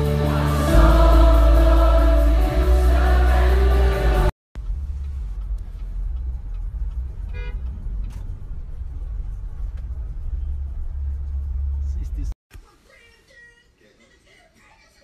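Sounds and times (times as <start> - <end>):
car interior rumble: 4.6 - 12.3
car horn toot: 7.3 - 7.7.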